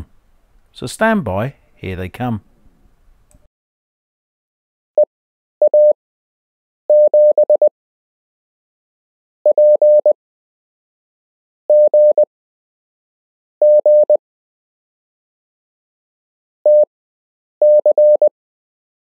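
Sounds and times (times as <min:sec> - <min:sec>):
morse code beeps: 0:05.6 - 0:06.0, 0:06.9 - 0:07.7, 0:09.5 - 0:10.2, 0:11.7 - 0:12.3, 0:13.6 - 0:14.2, 0:16.7 - 0:16.9, 0:17.6 - 0:18.3.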